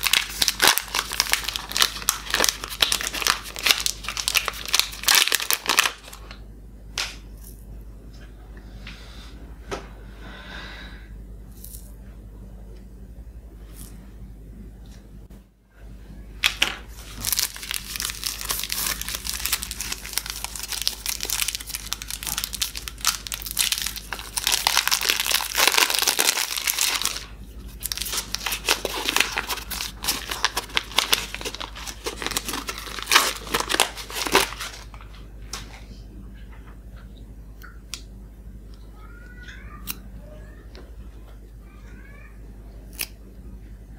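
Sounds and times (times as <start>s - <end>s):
foil wrapper crinkling: 0.0s - 6.4s, 16.5s - 35.8s.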